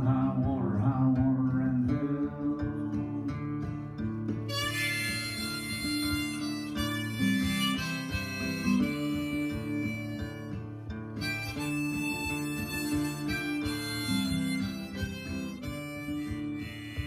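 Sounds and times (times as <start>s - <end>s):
strummed acoustic guitar: 0.0s - 17.0s
harmonica playing: 4.1s - 17.0s.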